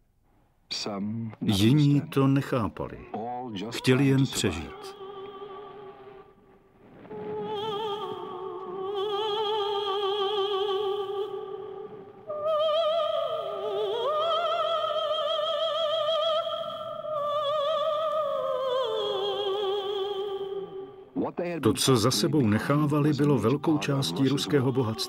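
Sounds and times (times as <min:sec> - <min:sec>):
solo voice singing with vibrato: 0:07.2 - 0:20.9.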